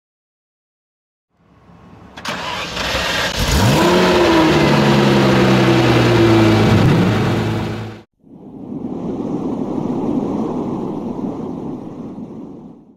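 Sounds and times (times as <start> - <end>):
car engine starting and idling: 1.4 - 8.0.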